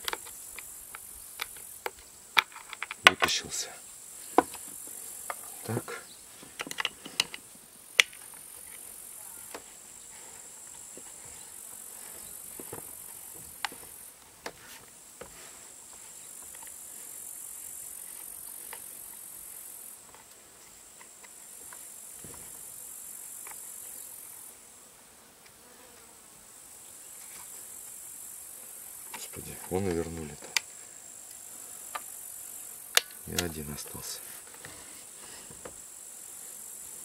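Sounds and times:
chainsaw parts clicking: 0.0s - 3.3s, 6.5s - 7.4s, 32.9s - 33.6s
insects chirring: 0.0s - 37.0s.

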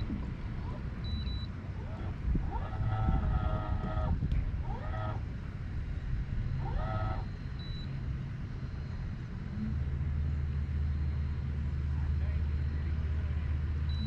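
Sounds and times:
electric boat motor humming: 0.0s - 14.0s.

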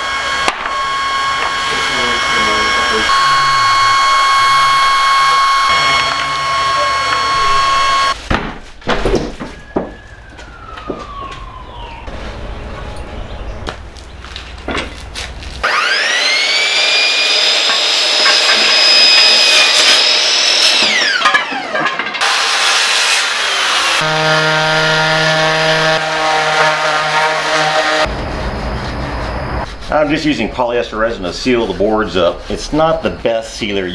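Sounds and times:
orbital sander humming: 0.0s - 8.2s, 15.6s - 21.0s, 22.2s - 28.1s
power tool whining: 0.0s - 8.2s, 15.6s - 28.1s.

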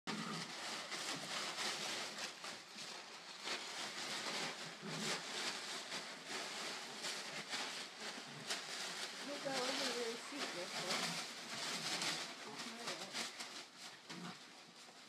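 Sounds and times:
packing paper crinkling: 0.1s - 15.0s.

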